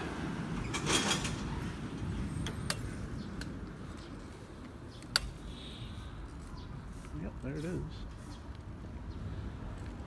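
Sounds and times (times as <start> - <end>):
road traffic rumbling: 0.0 - 10.0
sharp clicks: 4.9 - 5.4.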